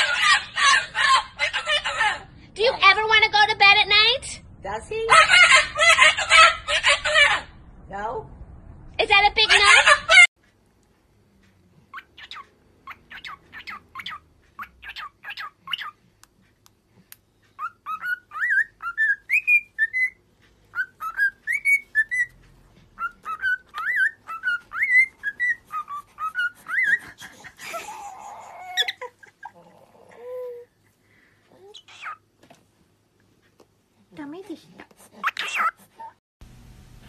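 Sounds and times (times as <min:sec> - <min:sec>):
cockatiel chirping: 0:11.9 - 0:16.0, 0:17.5 - 0:22.4, 0:23.0 - 0:27.1
cockatiel whistling a tune: 0:17.6 - 0:22.4, 0:23.0 - 0:27.0.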